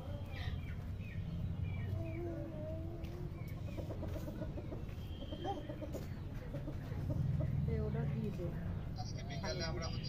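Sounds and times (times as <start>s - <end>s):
chickens clucking and calling: 0.0s - 7.7s.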